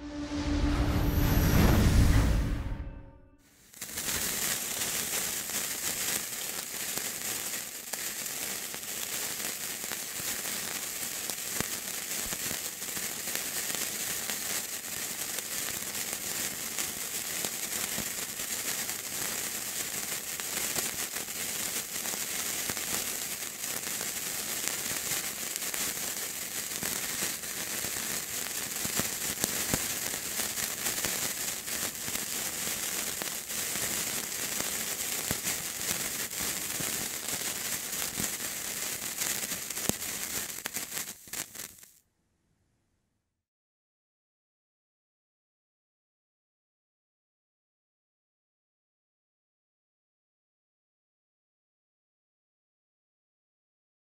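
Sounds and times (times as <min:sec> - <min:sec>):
burning fuse hissing: 0:03.5 - 0:42.0
crackles and sharp pops: 0:03.6 - 0:42.0.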